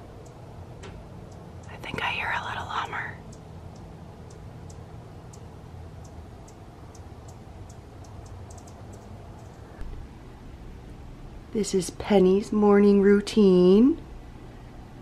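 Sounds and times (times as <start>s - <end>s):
faint low hum: 0.0s - 15.0s
hummingbird chip calls: 1.2s - 9.7s.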